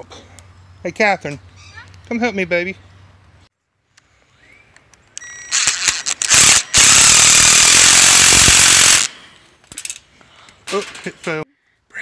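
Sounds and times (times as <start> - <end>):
impact driver hammering: 6.3 - 9.1.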